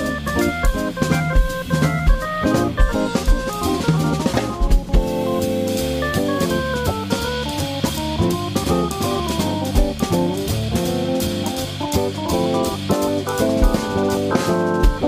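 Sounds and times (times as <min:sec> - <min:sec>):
electric guitar single-note lines: 0:00.0 - 0:11.3
drum kit cymbals: 0:00.0 - 0:15.0
organ chords: 0:00.0 - 0:15.0.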